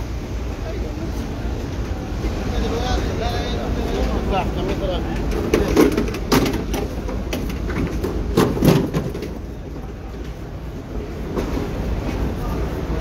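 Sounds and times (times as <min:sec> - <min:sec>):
sharp knocks and clatters: 0:05.1 - 0:09.4.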